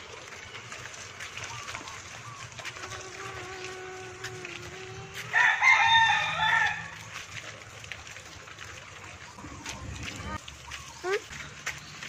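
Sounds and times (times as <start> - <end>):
rooster crowing: 5.3 - 7.0.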